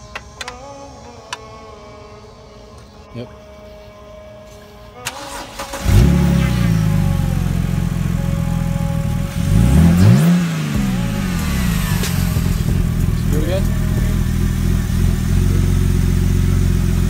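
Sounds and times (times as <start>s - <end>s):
car engine starting and revving: 5.0s - 17.0s.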